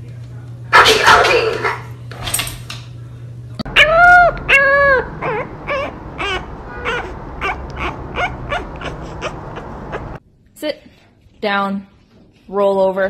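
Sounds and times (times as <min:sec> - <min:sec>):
puppy whining and whimpering: 0:03.7 - 0:10.2.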